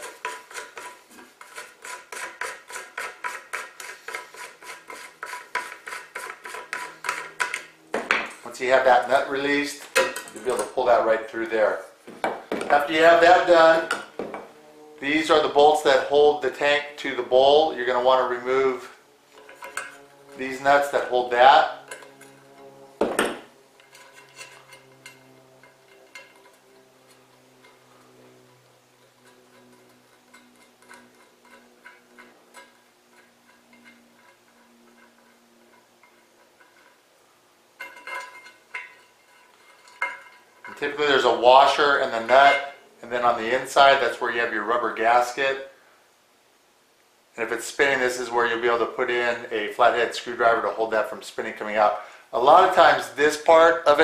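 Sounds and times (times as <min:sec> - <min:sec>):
metal clank: 0:09.8 - 0:10.7, 0:21.4 - 0:26.6, 0:37.8 - 0:40.9.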